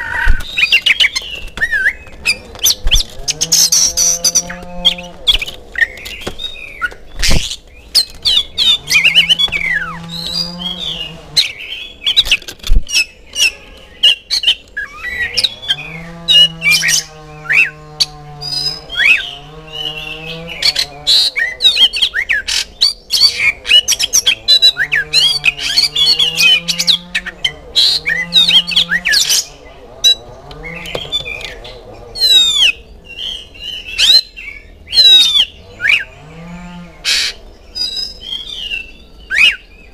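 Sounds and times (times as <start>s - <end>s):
bird singing whistles and chatter: 32.2s - 36.1s, 37.7s - 39.8s.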